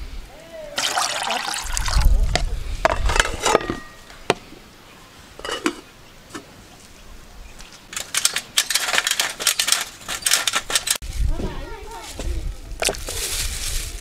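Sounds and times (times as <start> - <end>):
metal pot lid clinking: 3.0 - 4.1
lid rattling clatter: 7.9 - 11.0.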